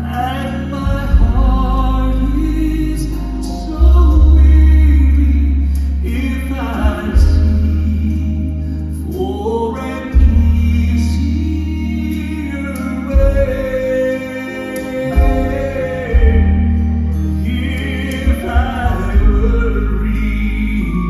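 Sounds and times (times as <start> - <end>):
male quartet singing in harmony: 0.0 - 21.0.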